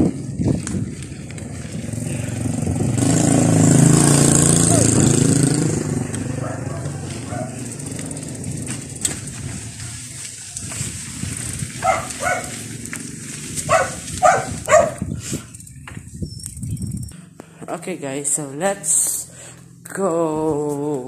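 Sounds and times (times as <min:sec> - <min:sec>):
dog barking: 0:06.4 - 0:07.6, 0:11.8 - 0:12.6, 0:13.7 - 0:15.1.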